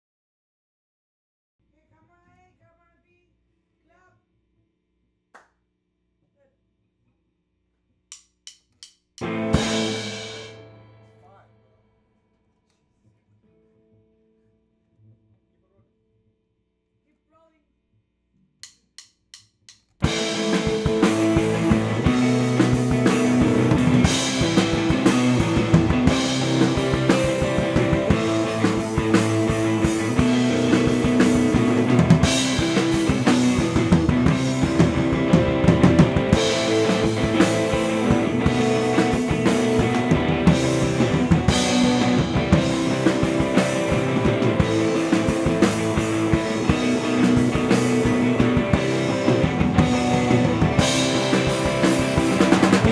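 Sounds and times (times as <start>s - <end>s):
drum kit: 8.1s - 11.4s, 18.6s - 52.9s
electric guitars: 9.2s - 11.2s, 20.0s - 52.9s
person counting in: 17.1s - 17.8s.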